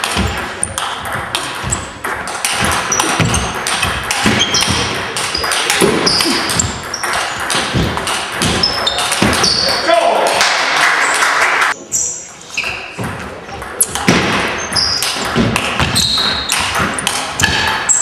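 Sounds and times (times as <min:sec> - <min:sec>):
footwork thuds: 0:00.0 - 0:09.5
shoes squeaking on wooden floor: 0:00.0 - 0:09.9, 0:11.8 - 0:18.0.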